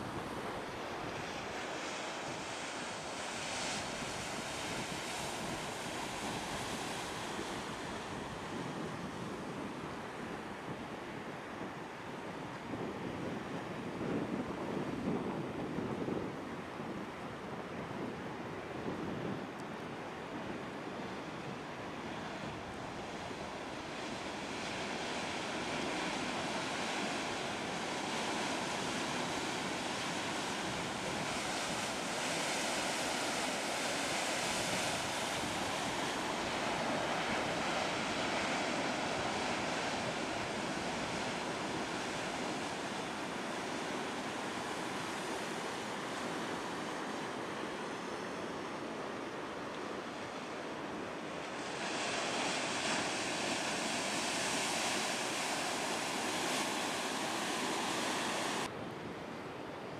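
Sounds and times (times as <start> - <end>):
storm surf breaking: 22.3 - 48.2, 51.0 - 58.7.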